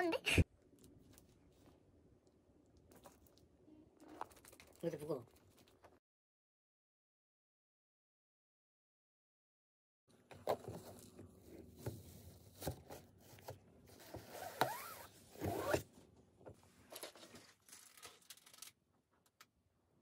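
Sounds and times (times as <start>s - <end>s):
plastic box rustling and crinkling: 16.8s - 18.8s.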